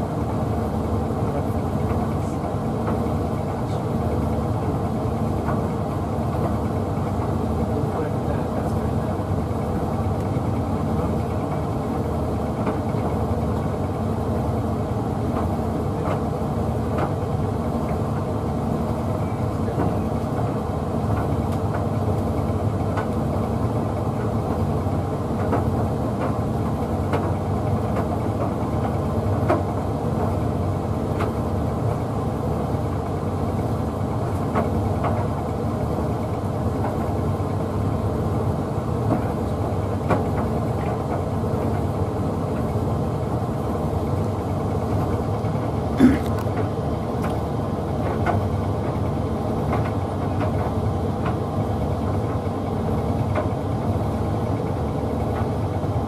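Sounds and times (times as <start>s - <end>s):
light taps in dryer drum: 48.0s - 49.0s.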